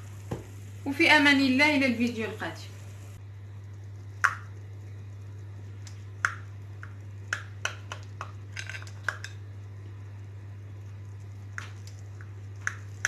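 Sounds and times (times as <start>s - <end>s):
low hum: 1.9s - 7.6s.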